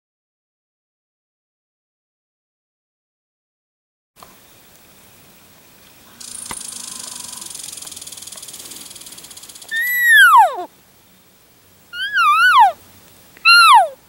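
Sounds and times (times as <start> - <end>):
raspy high buzz: 6.0 - 13.0
elk mewing: 6.1 - 10.7, 11.9 - 12.8, 13.4 - 14.0.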